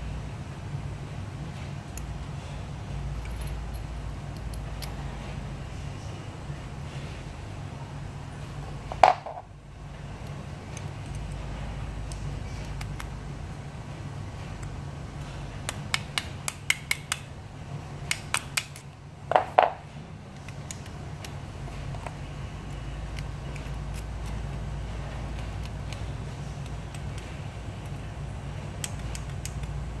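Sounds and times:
small metal clicks: 0:03.2 - 0:05.1, 0:18.0 - 0:19.0, 0:20.4 - 0:24.5, 0:28.8 - 0:29.8.

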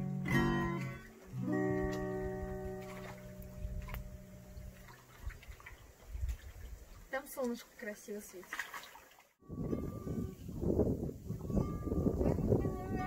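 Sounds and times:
acoustic guitar strums: 0:00.0 - 0:04.8.

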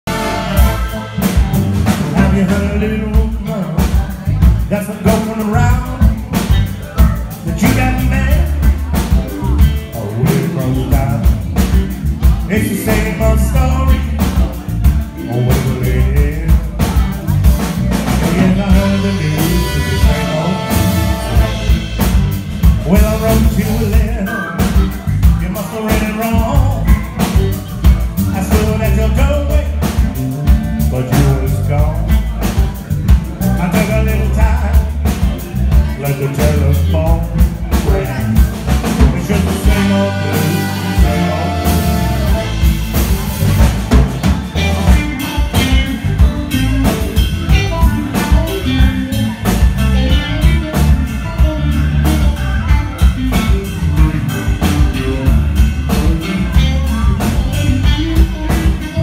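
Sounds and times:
saxophones: 0:00.0 - 0:02.7, 0:18.2 - 0:25.0, 0:39.2 - 0:59.0
live rock blues band: 0:00.0 - 0:59.0.

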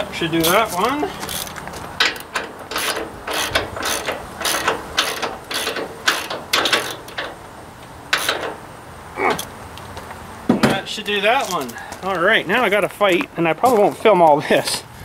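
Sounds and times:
ratchet wrench clicking: 0:00.4 - 0:07.4, 0:08.1 - 0:08.6.

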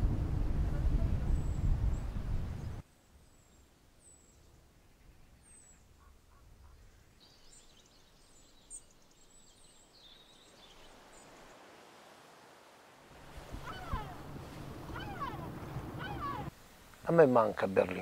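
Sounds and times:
faint high bird chirps: 0:14.9 - 0:16.5.

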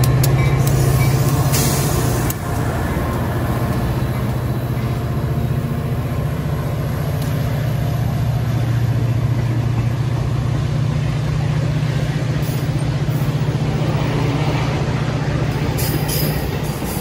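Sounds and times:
diesel locomotive engine drone: 0:00.0 - 0:17.0
passenger cars rolling past: 0:00.0 - 0:17.0.

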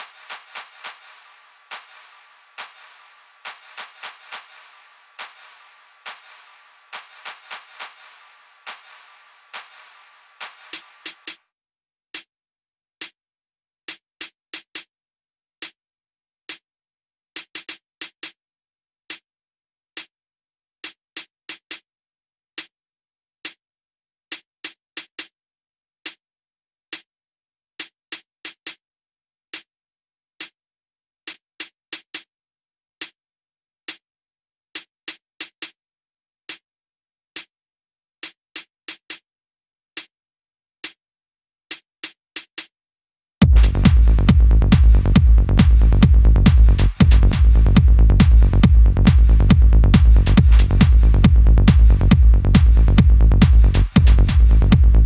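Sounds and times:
dry snare drum hits: 0:00.0 - 0:11.4, 0:43.4 - 0:54.9.

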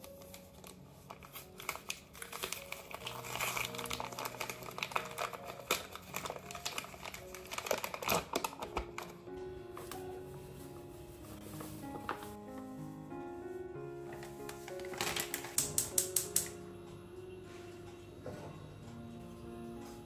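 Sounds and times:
paper bag crinkling: 0:00.0 - 0:10.4, 0:14.0 - 0:16.3.

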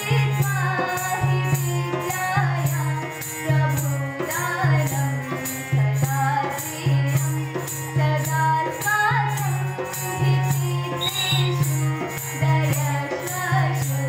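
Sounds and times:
dholak drum beating: 0:00.0 - 0:14.0
harmonium: 0:00.0 - 0:14.0
tambourine jingling: 0:05.4 - 0:14.0.

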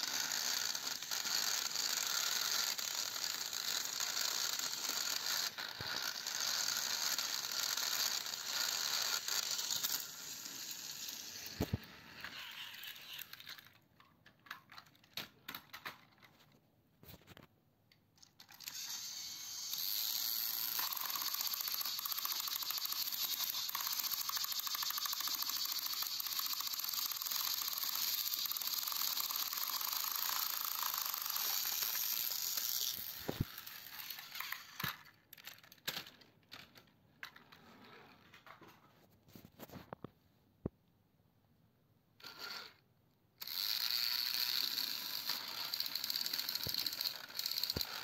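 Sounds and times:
toy train motor whirring: 0:00.0 - 0:13.8, 0:18.2 - 0:37.5, 0:42.2 - 0:42.8, 0:43.4 - 0:48.0.

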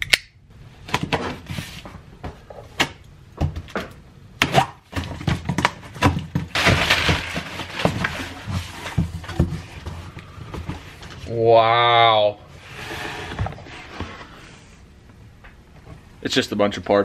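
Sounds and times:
cardboard scraping: 0:01.0 - 0:02.7, 0:04.9 - 0:11.4, 0:12.5 - 0:14.8.

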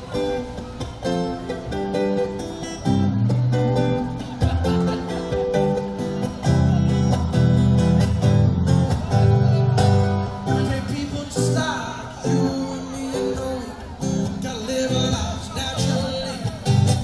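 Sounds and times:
acoustic guitar strumming: 0:00.0 - 0:17.0
man singing: 0:10.2 - 0:17.0.

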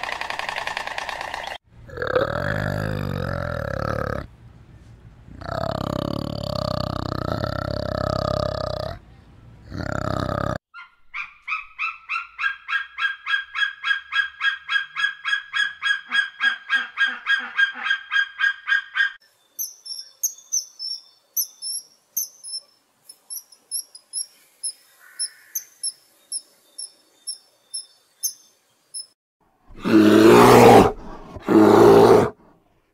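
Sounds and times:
eagle calls: 0:10.8 - 0:19.2, 0:23.3 - 0:26.0
swallows chirping: 0:19.3 - 0:29.2.

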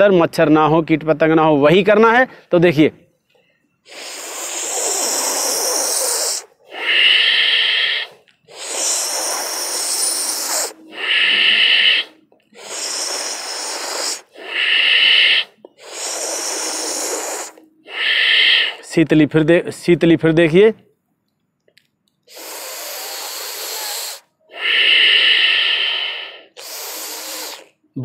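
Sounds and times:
airy inhalation through tongue: 0:03.4 - 0:18.9, 0:22.2 - 0:28.0
exhalation through the nose: 0:03.8 - 0:18.9, 0:22.2 - 0:28.0.

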